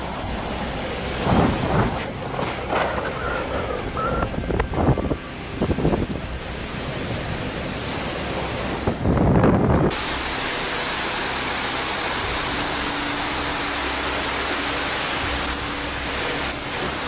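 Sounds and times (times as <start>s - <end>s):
storm wind and rain: 0.0s - 17.0s
wind buffeting microphone: 3.0s - 7.4s, 8.6s - 10.0s
floodwater pouring down stairs: 9.8s - 17.0s.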